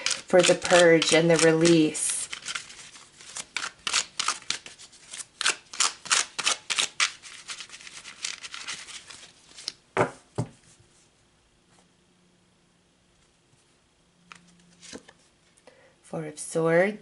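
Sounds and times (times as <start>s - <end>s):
cards being shuffled: 0.0s - 9.8s, 14.3s - 15.3s.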